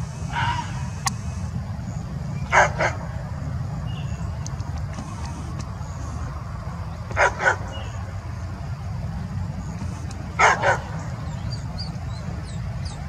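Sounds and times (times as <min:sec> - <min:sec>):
large dog barking: 0:02.5 - 0:03.1, 0:07.1 - 0:08.0, 0:10.4 - 0:11.1.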